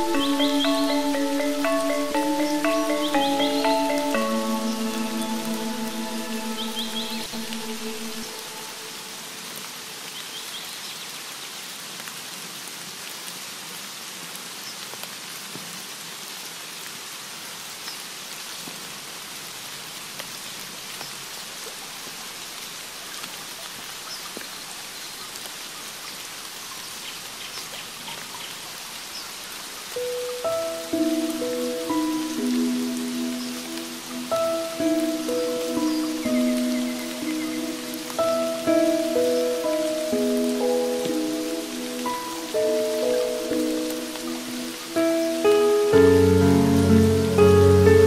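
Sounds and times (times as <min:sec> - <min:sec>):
gamelan instrumental music: 0:00.0 - 0:08.9, 0:30.1 - 0:48.0
steady rain hiss: 0:00.0 - 0:48.0.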